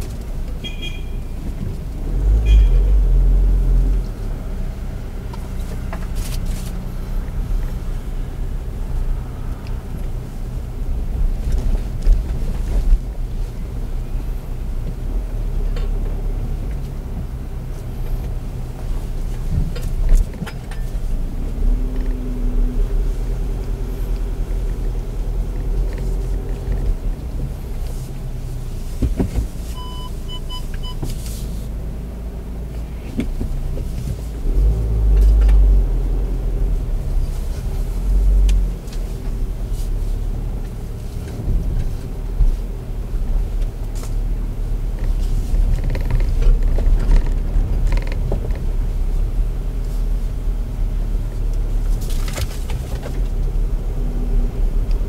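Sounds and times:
car engine and road rumble: 0:00.0 - 0:55.0
short electronic beeps: 0:00.6 - 0:01.3, 0:02.4 - 0:02.8, 0:29.8 - 0:31.0
knocks and clunks from bumps: 0:29.0 - 0:29.6.

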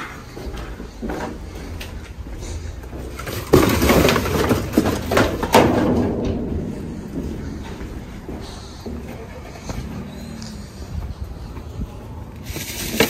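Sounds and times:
cardboard and bags rustling: 0:00.0 - 0:06.1, 0:12.4 - 0:13.0.

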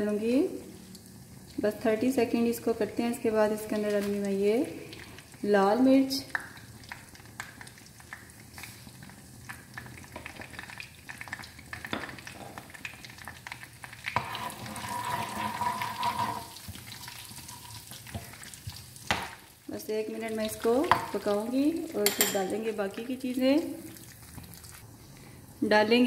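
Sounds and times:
spices sizzling in hot ghee: 0:00.0 - 0:24.9
spoon stirring a pan: 0:10.0 - 0:19.4, 0:20.6 - 0:22.7.

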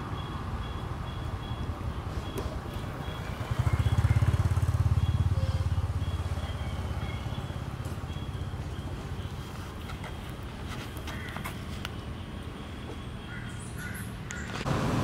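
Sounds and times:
motorcycle engine passing: 0:02.8 - 0:08.7.

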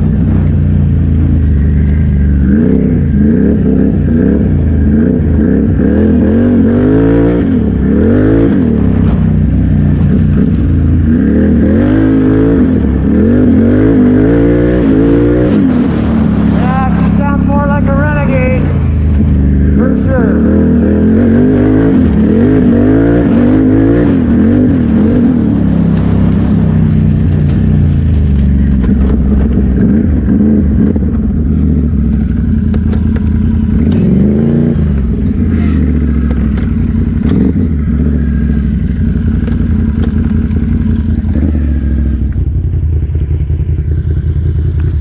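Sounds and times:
engine revving: 0:00.0 - 0:45.0.

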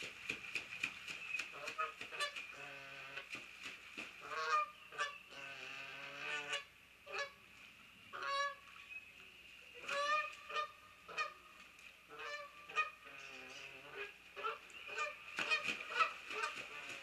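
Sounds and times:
geese honking: 0:04.2 - 0:07.4, 0:08.2 - 0:08.6, 0:09.8 - 0:11.4, 0:12.1 - 0:17.0.

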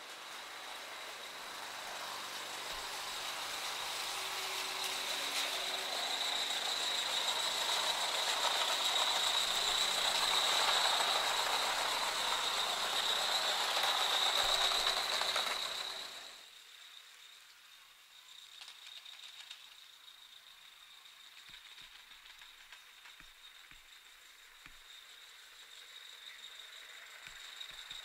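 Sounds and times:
steam hissing: 0:00.0 - 0:16.4
wheels clicking on rails: 0:00.0 - 0:16.4
constant high-pitched tone: 0:00.0 - 0:28.0.

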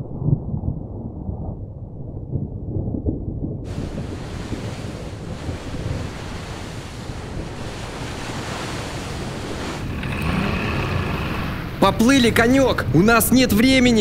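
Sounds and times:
steady wind: 0:00.0 - 0:14.0
surf noise: 0:03.7 - 0:14.0.

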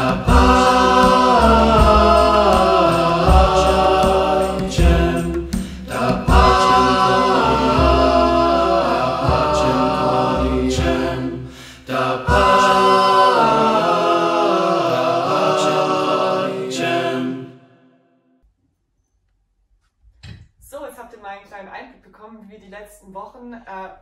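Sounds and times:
low bass: 0:00.0 - 0:11.5
voices singing in close harmony: 0:00.0 - 0:17.9.

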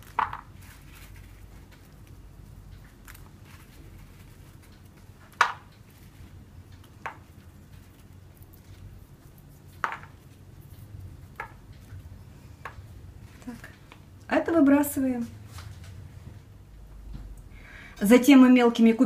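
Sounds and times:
low room hum: 0:00.0 - 0:19.0.

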